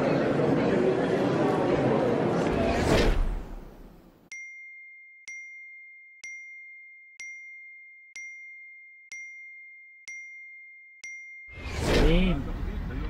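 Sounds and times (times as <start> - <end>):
high bell-like ding: 4.3 - 11.7.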